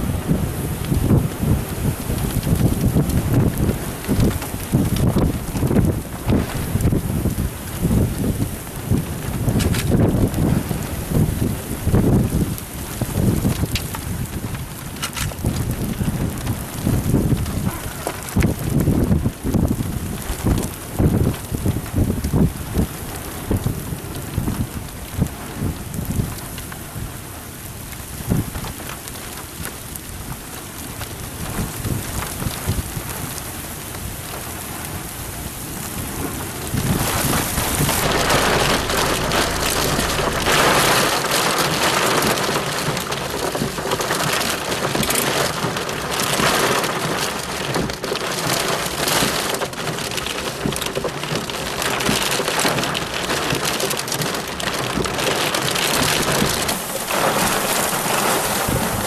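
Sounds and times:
rain pouring: 0.0 - 59.0
low thunder rumble: 35.9 - 44.5, 54.8 - 59.0.

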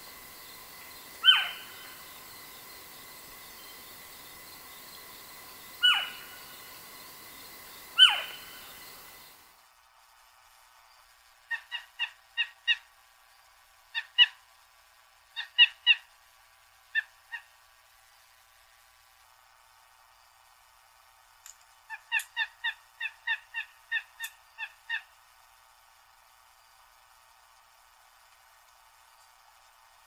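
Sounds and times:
steady hiss: 0.0 - 11.4
owl cries falling in pitch: 1.2 - 1.8, 5.8 - 6.3, 8.0 - 8.5.

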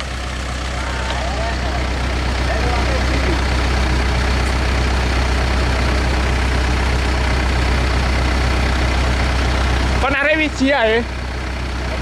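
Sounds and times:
diesel engine droning: 0.0 - 12.0.

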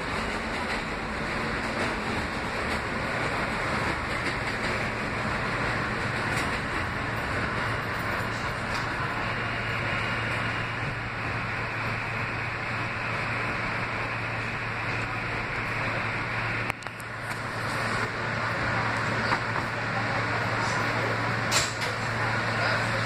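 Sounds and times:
subway car wheels rumbling: 0.0 - 23.0.

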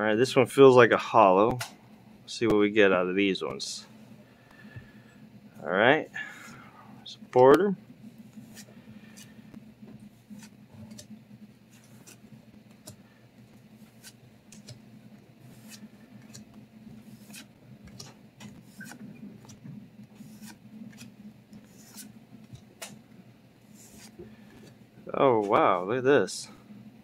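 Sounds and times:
trading cards being flipped through: 11.7 - 13.0, 13.8 - 14.8, 15.4 - 23.0, 23.7 - 24.8.

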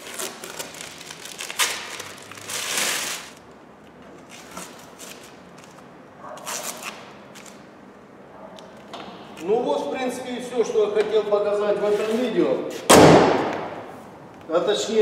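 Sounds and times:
tape crackling and tearing: 0.0 - 3.4, 6.4 - 7.6.

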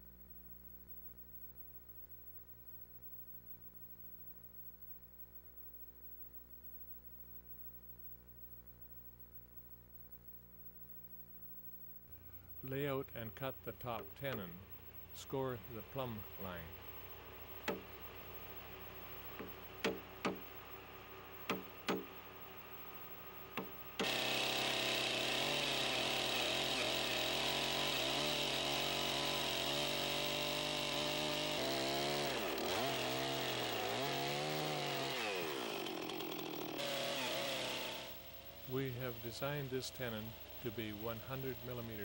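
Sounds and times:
chainsaw cutting wood: 17.6 - 17.9, 19.3 - 20.5, 21.4 - 22.2, 23.5 - 42.0.

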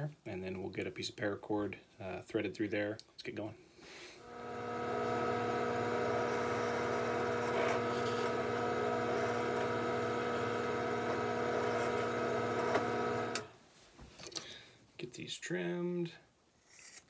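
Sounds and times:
drill press motor humming: 4.2 - 13.5.

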